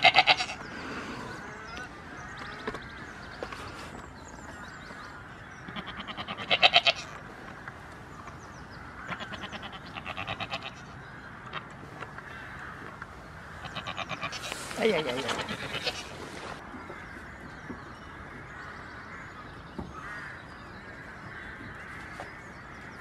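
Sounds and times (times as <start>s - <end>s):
goats bleating: 0.0s - 0.6s, 5.7s - 7.1s, 13.6s - 16.5s.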